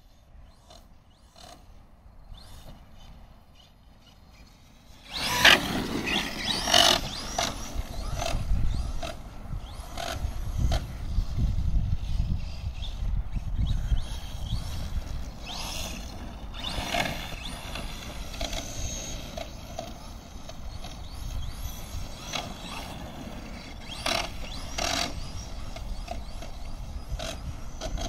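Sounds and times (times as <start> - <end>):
electric motor whining: 0.0 - 28.0
wind rumble on microphone: 5.1 - 28.0.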